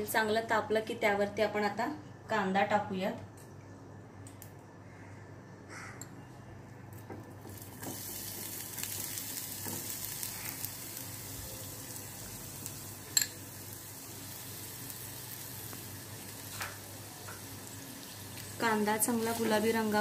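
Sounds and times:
onion sizzling in hot oil: 7.4s - 20.0s.

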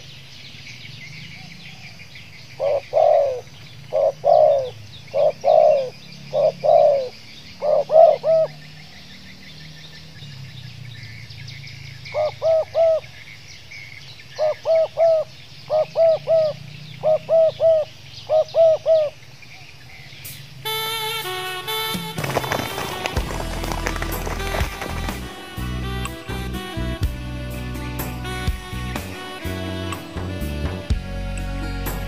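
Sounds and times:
small birds chirping: 0.0s - 20.6s
dove cooing: 2.6s - 8.8s, 12.1s - 13.2s, 14.4s - 19.2s, 20.7s - 31.0s.

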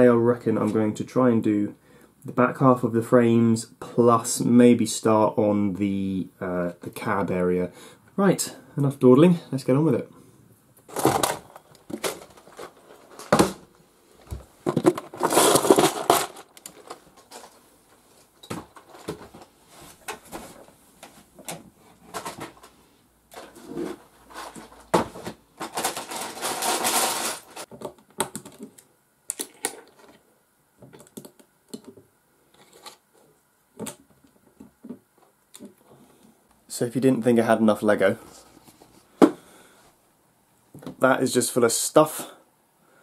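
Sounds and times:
plastic bricks clattering: 10.9s - 13.6s, 14.7s - 17.6s, 23.3s - 28.8s
clicks of pieces set down: 10.9s - 17.6s, 23.3s - 30.2s.

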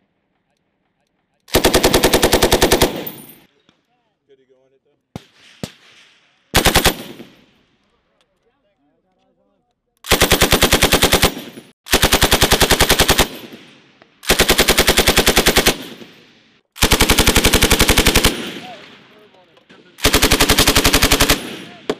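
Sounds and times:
machine gun automatic bursts: 1.5s - 3.5s, 6.6s - 7.4s, 10.1s - 16.2s, 16.8s - 21.9s
gunfire echo: 5.2s - 7.8s, 10.1s - 21.9s.

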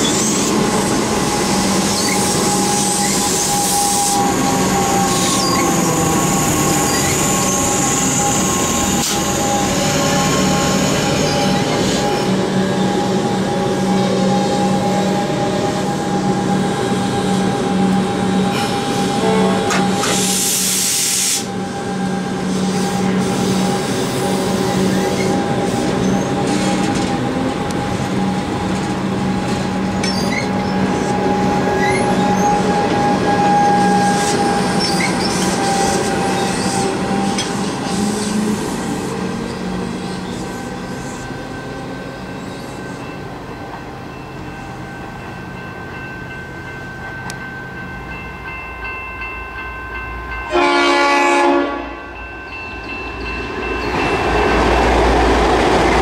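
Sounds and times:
train motor humming and whine: 0.0s - 56.0s
train wheels on rail: 0.0s - 56.0s.

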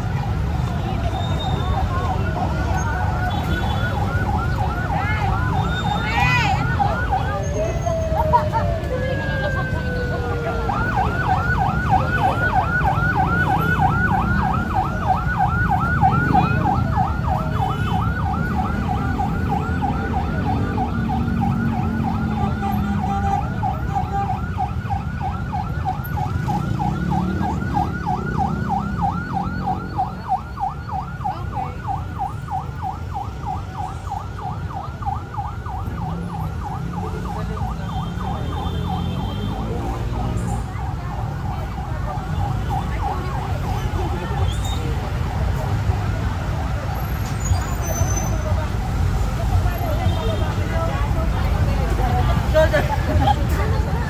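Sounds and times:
electronic siren yelping: 1.1s - 40.1s.

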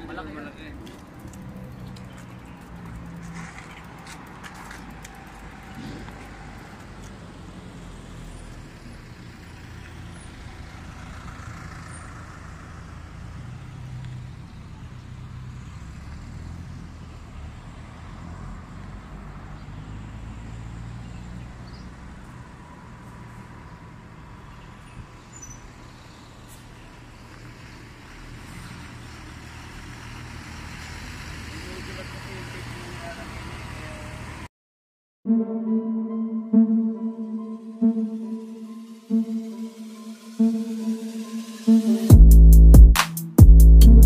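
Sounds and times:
road traffic noise: 0.0s - 34.5s, 36.0s - 44.0s
vehicle engines running at low revs: 0.0s - 34.5s.

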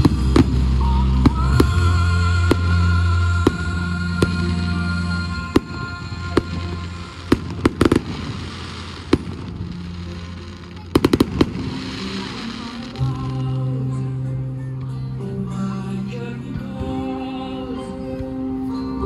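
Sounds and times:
fireworks bursting: 0.0s - 13.6s.

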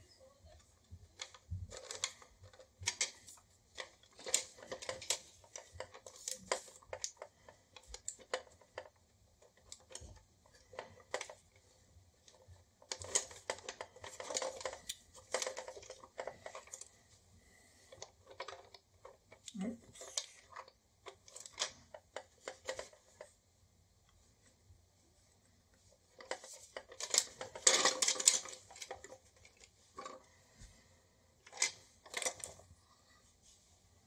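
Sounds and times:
plastic toy parts clicking: 26.1s - 30.3s.

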